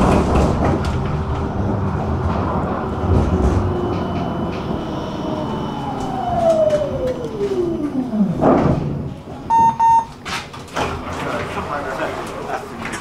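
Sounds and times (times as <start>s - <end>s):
tram traction motor whine: 0.0s - 9.5s
tram running noise: 0.0s - 13.0s.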